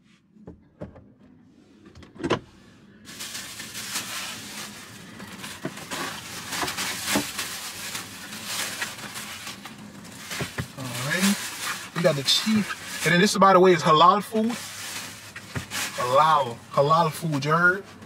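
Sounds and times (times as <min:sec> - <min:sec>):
plastic bag rustling: 0:03.0 - 0:17.4.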